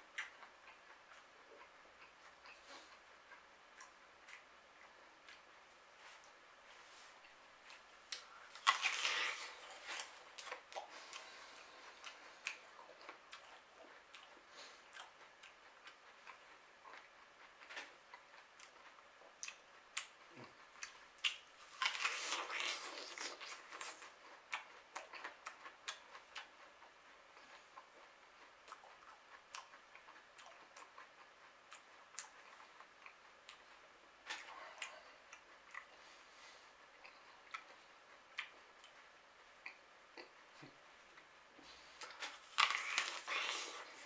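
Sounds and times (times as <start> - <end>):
apple crunching bites: 8.1 - 10.9, 20.8 - 24.1, 42.0 - 44.0.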